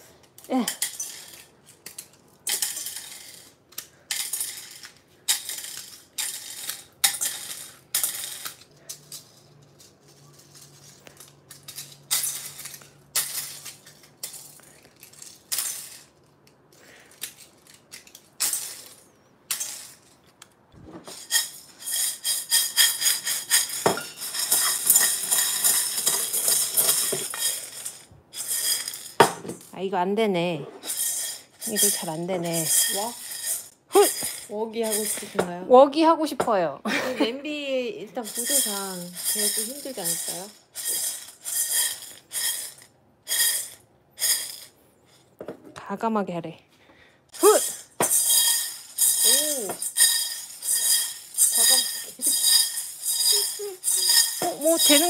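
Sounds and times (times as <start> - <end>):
spoon stirring rattling plastic pile: 21.1 - 29.2, 30.8 - 35.4, 38.2 - 42.8, 47.4 - 55.0
plastic kernels clattering into saucepan: 30.8 - 35.5, 38.2 - 44.7, 47.4 - 55.0.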